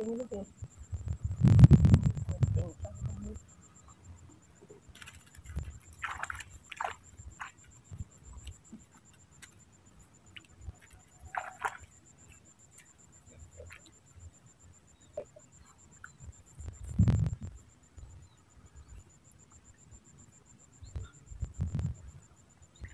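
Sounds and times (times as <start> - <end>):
water splashing and dripping: 4.9 - 9.6, 10.2 - 14.0.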